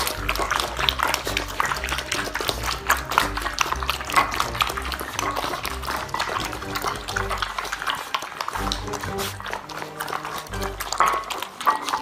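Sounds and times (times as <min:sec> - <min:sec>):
background music with bass: 0:00.0 - 0:07.8, 0:08.6 - 0:09.6, 0:10.5 - 0:11.0
puppies lapping and smacking: 0:00.0 - 0:12.0.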